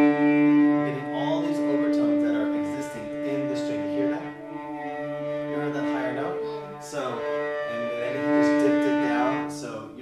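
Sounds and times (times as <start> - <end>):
cellos bowing sustained notes: 0.0 - 10.0.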